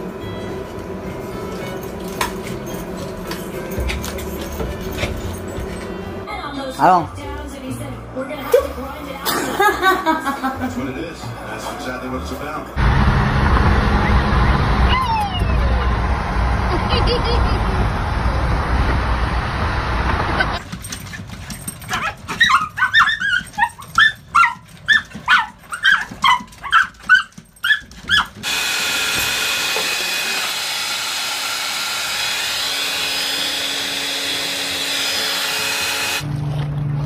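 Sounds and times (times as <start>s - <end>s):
car road noise: 12.6s - 20.6s
small dogs barking: 21.8s - 28.4s.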